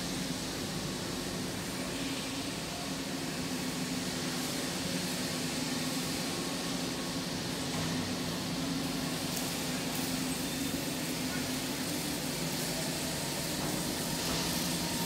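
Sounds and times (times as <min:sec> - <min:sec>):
low machinery hum: 0:00.0 - 0:15.0.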